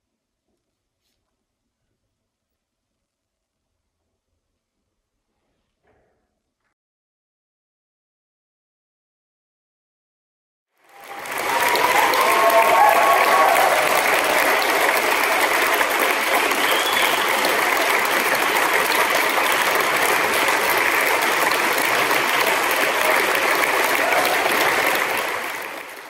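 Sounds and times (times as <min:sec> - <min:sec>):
crowd applauding: 0:10.8 - 0:26.0.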